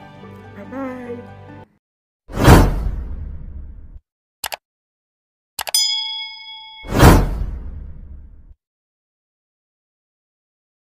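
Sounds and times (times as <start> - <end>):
whoosh: 6.8 - 8.5.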